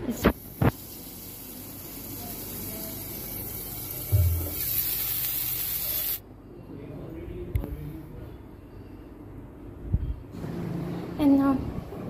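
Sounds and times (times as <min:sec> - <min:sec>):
food sizzling in hot oil: 0:00.2 - 0:06.2.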